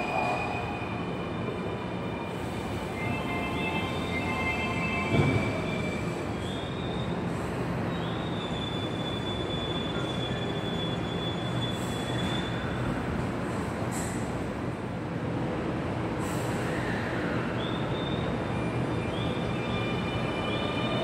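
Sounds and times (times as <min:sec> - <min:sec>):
train wheels rumbling: 0:00.0 - 0:14.8
train thump: 0:05.0 - 0:05.7.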